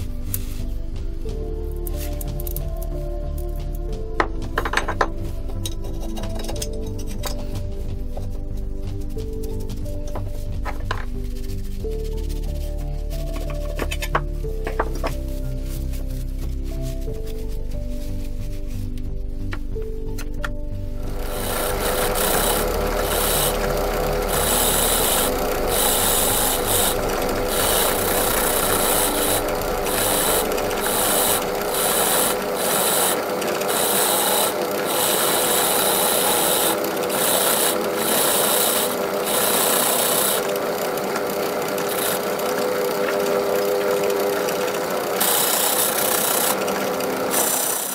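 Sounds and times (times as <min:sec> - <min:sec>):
drill press motor hum: 0:21.0 - 0:47.9
wire brush scrubbing metal: 0:21.0 - 0:47.9.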